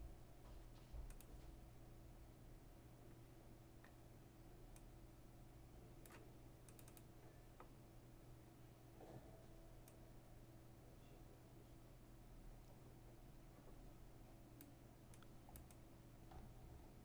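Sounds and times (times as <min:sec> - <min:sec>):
low steady hum: 0:00.0 - 0:17.0
computer mouse clicks: 0:01.1 - 0:01.3, 0:06.0 - 0:07.1, 0:14.6 - 0:15.8.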